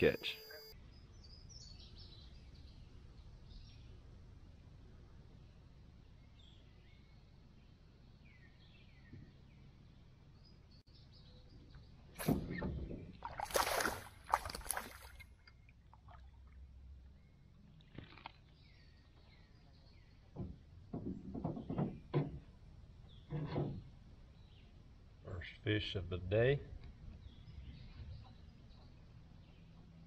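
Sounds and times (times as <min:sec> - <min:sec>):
water splashing against a kayak: 0:12.2 - 0:15.3
small birds chirping: 0:17.0 - 0:20.8, 0:26.3 - 0:30.0.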